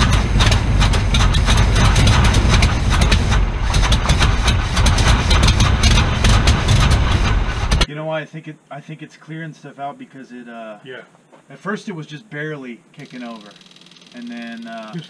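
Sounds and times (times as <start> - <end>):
engine running unevenly: 0.0 - 7.9.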